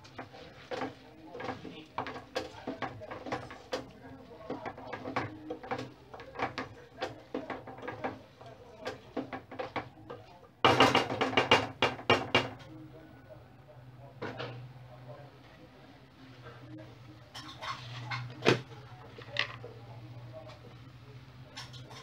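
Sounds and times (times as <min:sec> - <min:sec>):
wooden spoon scraping metal pot: 0:00.0 - 0:10.3, 0:17.3 - 0:19.7.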